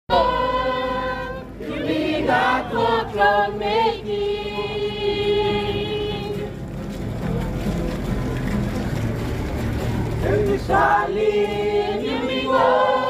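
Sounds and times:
choir singing a hymn: 0:00.1 - 0:06.6, 0:10.2 - 0:13.0.

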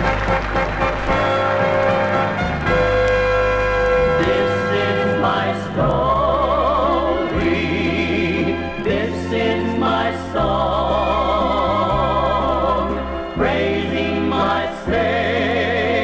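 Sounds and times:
instrumental accompaniment: 0:00.0 - 0:16.0
vocal group singing in harmony: 0:04.0 - 0:16.0.

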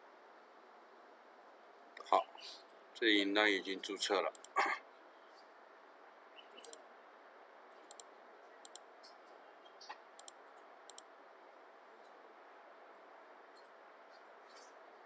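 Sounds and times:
computer mouse clicking: 0:04.3 - 0:04.6, 0:06.5 - 0:06.8, 0:07.7 - 0:08.8, 0:09.9 - 0:11.1.

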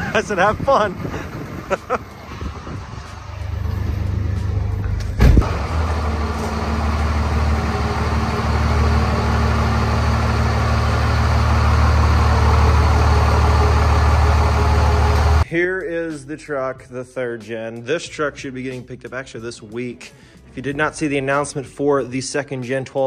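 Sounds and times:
diesel engine running at low speed: 0:00.0 - 0:15.4
thump: 0:05.0 - 0:05.5.

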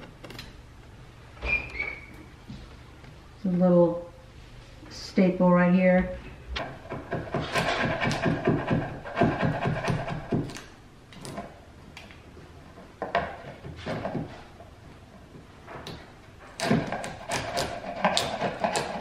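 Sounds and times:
chisel scraping paint off wood: 0:06.6 - 0:11.5, 0:16.6 - 0:19.0.

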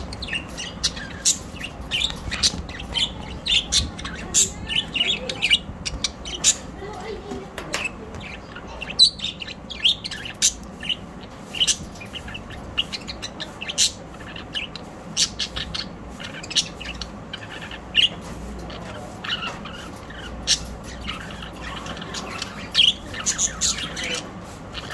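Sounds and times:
budgerigars chirping: 0:00.0 - 0:24.9.

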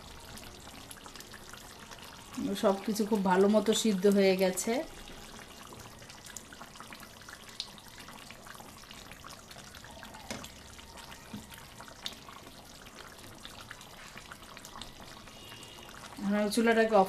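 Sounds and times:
curry bubbling in a pan: 0:00.0 - 0:17.0.

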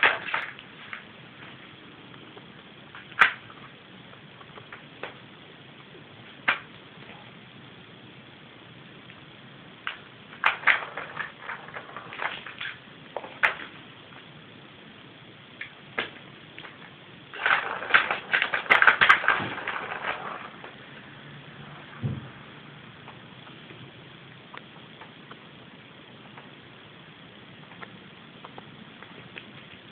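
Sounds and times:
cat batting ball on plastic track: 0:00.0 - 0:01.1, 0:02.9 - 0:03.5, 0:09.8 - 0:13.8, 0:15.6 - 0:21.0.

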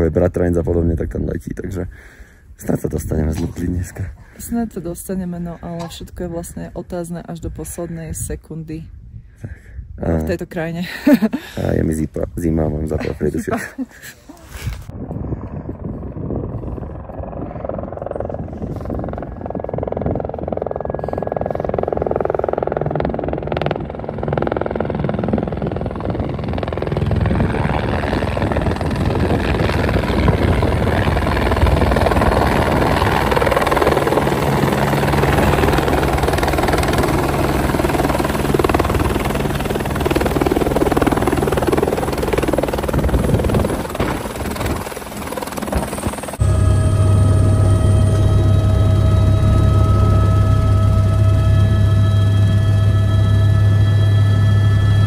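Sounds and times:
helicopter rotor and engine: 0:02.6 - 0:55.0
low hum: 0:12.8 - 0:55.0.

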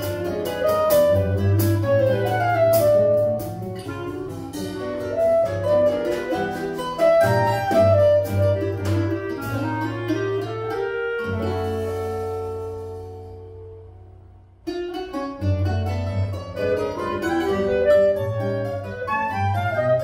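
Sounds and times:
light drum-kit percussion: 0:00.0 - 0:13.4
clarinet melody: 0:00.0 - 0:14.2, 0:15.4 - 0:20.0
bandolim and guitar accompaniment: 0:00.0 - 0:20.0.

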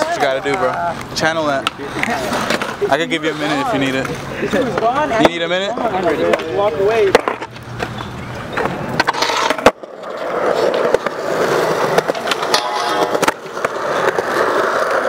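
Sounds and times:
skateboard clacks: 0:00.0 - 0:15.0
skateboard wheels rolling on concrete: 0:00.0 - 0:15.0.

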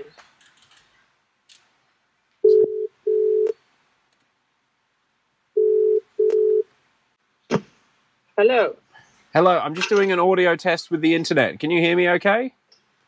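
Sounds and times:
phone ringback tone: 0:02.4 - 0:03.6, 0:05.6 - 0:06.7.

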